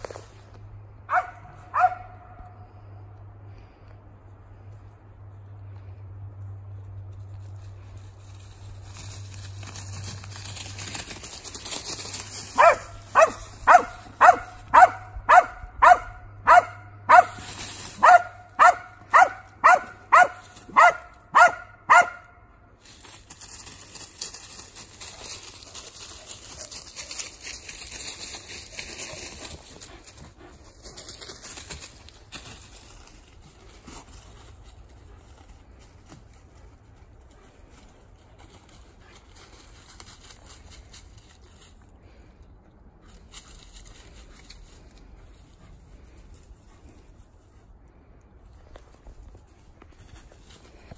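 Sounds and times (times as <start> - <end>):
dog barking: 1.1 - 2.4, 12.6 - 17.4, 18.0 - 22.4.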